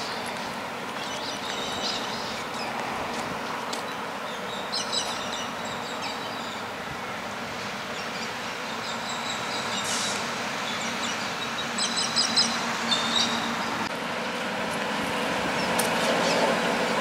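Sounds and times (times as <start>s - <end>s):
diesel railcar rumble: 0.0s - 17.0s
bird chirps: 8.0s - 13.7s.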